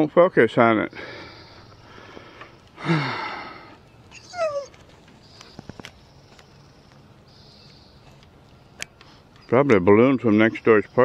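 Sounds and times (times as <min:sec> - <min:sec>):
dog yelping: 0:04.1 - 0:04.8.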